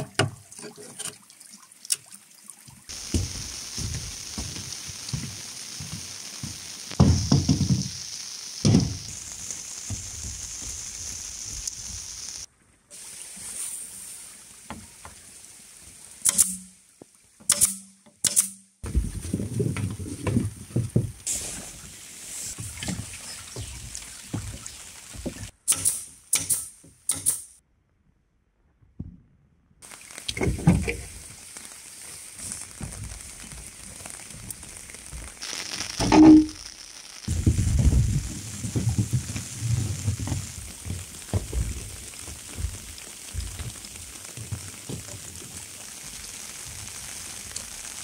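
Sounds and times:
rain falling: 2.9 - 17.2, 18.8 - 25.6, 29.8 - 48.0
bamboo poles knocking: 7.0 - 7.9.

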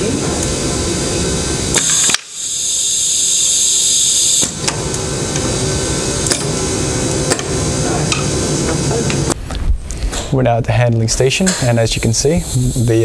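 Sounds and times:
steady machine hum: 0.0 - 13.0
compressed air hissing: 0.4 - 9.4, 11.5 - 13.0
valve clicking: 1.7 - 5.5.

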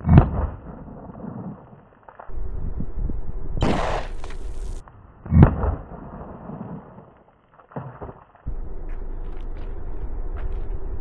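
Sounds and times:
low wind rumble on microphone: 0.0 - 7.2
pistol shot echo: 3.6 - 5.9.

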